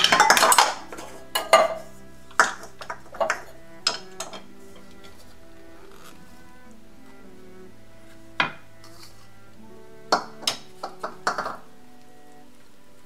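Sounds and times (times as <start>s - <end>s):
scoop clinking on ceramic bowls: 0.0s - 4.9s, 10.1s - 11.6s.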